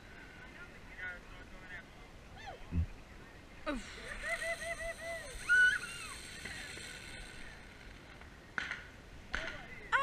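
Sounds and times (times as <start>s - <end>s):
high-pitched whoops and calls: 4.2s - 6.5s.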